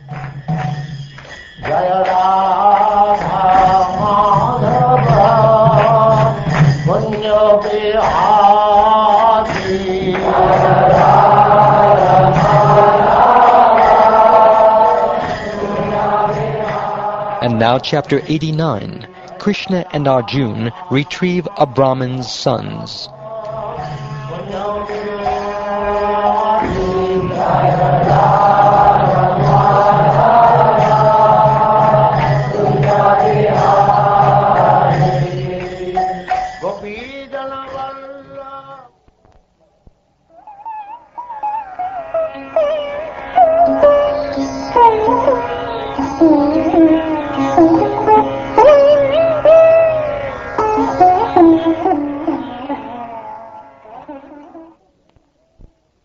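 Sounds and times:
man singing a chant: 0:01.7 - 0:13.9, 0:17.4 - 0:27.4, 0:32.6 - 0:38.9.

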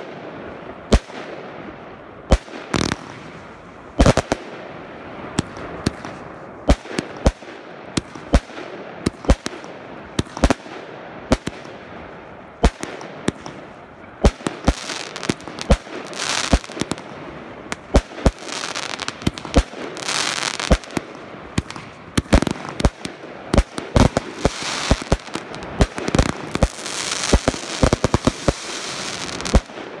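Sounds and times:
fireworks crackling and hissing: 0:00.0 - 0:30.0
fireworks bangs: 0:12.5 - 0:30.0.

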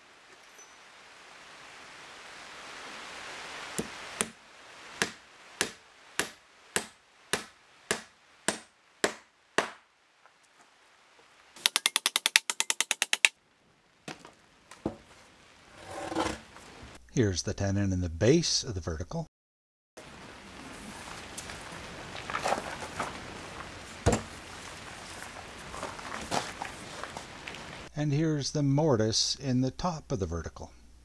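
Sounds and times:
fast sharp hammer taps: 0:05.0 - 0:09.8, 0:11.6 - 0:13.3
hammer striking timber: 0:05.0 - 0:09.8.

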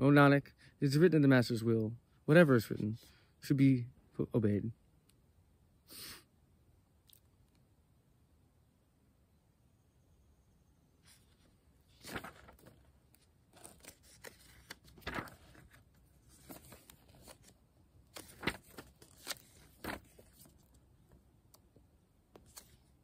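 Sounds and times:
book pages turning: 0:11.1 - 0:20.8, 0:22.3 - 0:23.0.

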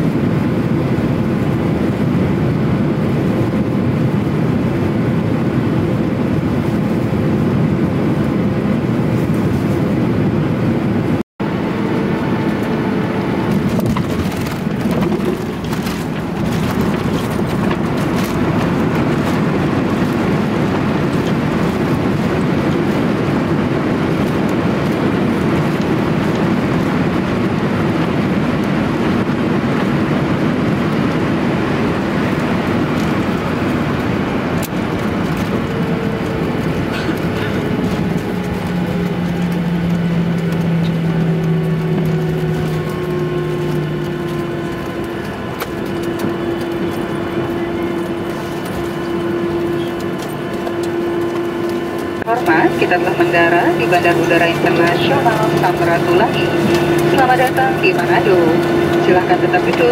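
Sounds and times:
aircraft engine and airflow noise: 0:00.0 - 0:59.9
aircraft touchdown rattles and knocks: 0:12.4 - 0:59.9.

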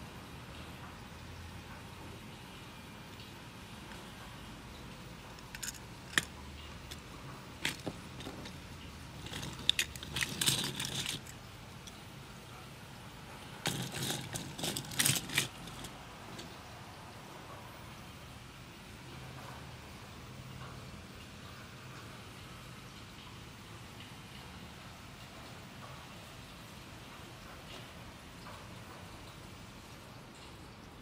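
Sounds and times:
plastic connectors clicking and clattering: 0:05.3 - 0:12.0, 0:13.6 - 0:16.6.

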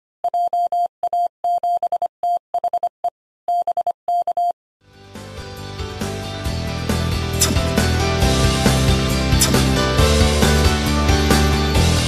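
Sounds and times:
morse code beeps: 0:00.2 - 0:02.9, 0:03.5 - 0:04.6
music: 0:04.8 - 0:12.0.

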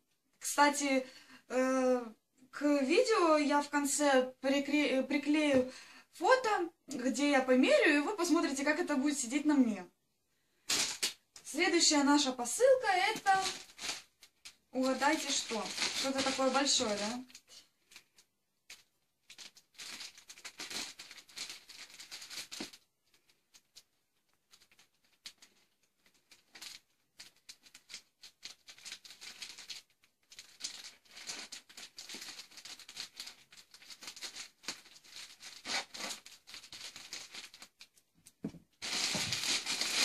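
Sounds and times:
plastic rustling and crinkling: 0:10.5 - 0:40.0.

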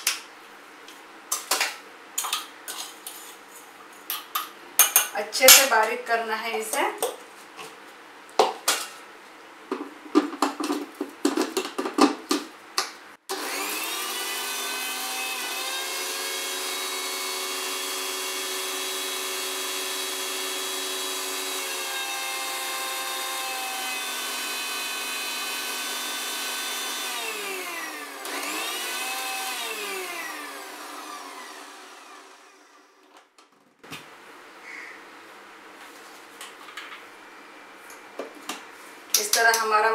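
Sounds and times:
mixer grinder motor grinding: 0:13.3 - 0:33.1.

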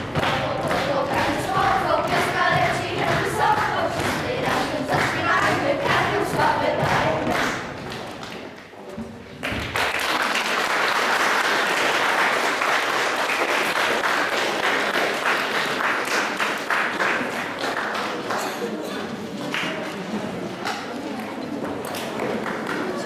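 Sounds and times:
children singing: 0:00.0 - 0:07.7
audience applause: 0:09.4 - 0:18.5.

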